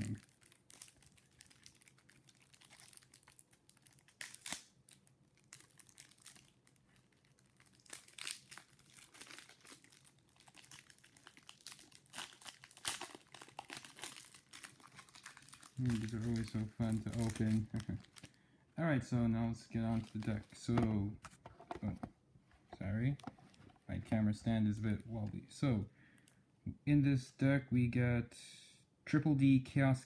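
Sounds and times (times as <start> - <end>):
packaging crackling and rustling: 0.0 - 18.4, 19.6 - 25.4
packaging ripping: 0.0 - 18.4, 19.8 - 20.8.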